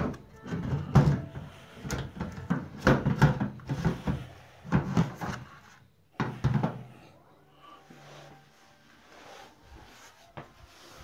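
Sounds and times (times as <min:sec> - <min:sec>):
hard plastic knocks and clatter: 0:00.0 - 0:05.4.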